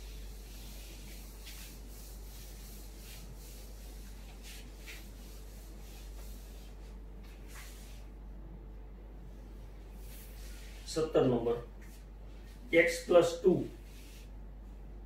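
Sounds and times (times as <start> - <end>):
duster rubbing on whiteboard: 0.0 - 8.1, 13.7 - 14.3
steady low hum: 0.0 - 15.0.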